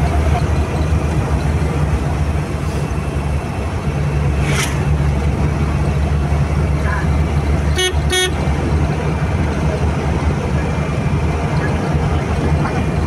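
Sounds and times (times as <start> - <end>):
car engine and tyres rumbling: 0.0 - 13.0
truck passing whoosh: 2.2 - 7.6.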